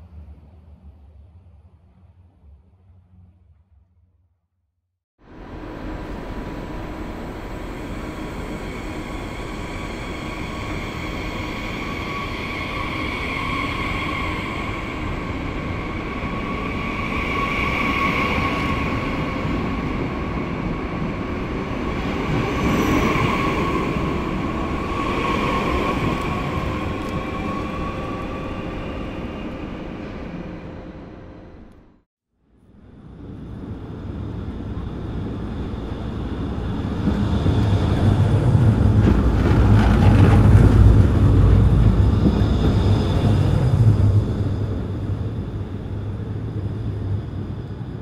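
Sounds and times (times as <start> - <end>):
train rumbling on rails: 5.2 - 32.0, 32.7 - 48.0.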